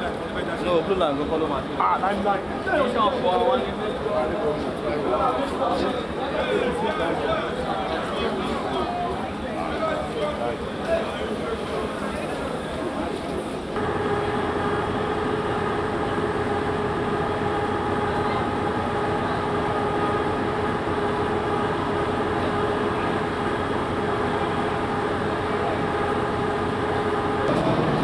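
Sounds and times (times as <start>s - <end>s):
machine hum: 13.8s - 28.0s.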